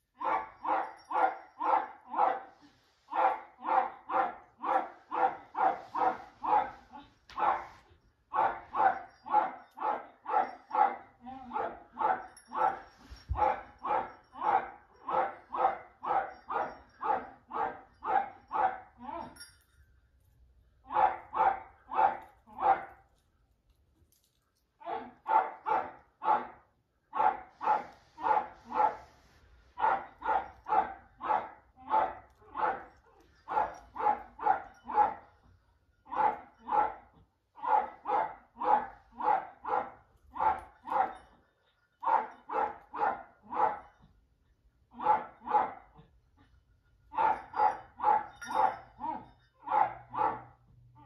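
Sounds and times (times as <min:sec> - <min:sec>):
small dog barking: 0:00.2 - 0:02.5, 0:03.1 - 0:12.8, 0:13.4 - 0:18.9, 0:20.9 - 0:23.0, 0:24.9 - 0:29.1, 0:29.8 - 0:35.2, 0:36.1 - 0:37.0, 0:37.6 - 0:41.2, 0:42.0 - 0:44.0, 0:44.9 - 0:45.9, 0:47.1 - 0:50.6.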